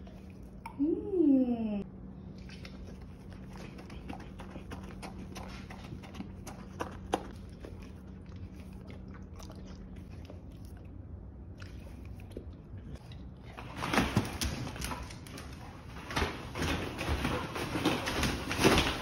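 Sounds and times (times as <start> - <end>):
dog licking and chewing: 2.2 - 15.9.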